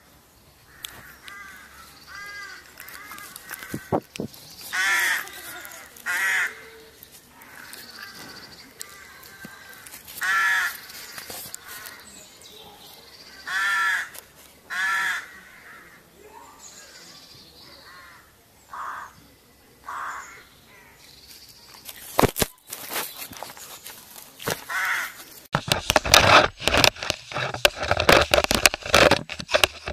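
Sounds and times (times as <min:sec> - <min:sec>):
harsh animal calls: 0:00.7 - 0:12.1
cat rubbing on microphone: 0:25.6 - 0:29.9.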